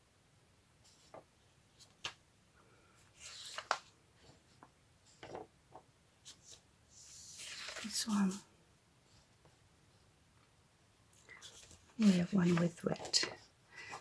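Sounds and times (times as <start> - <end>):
paper pages rustling: 0.8 - 2.2, 3.0 - 8.5, 11.2 - 14.0.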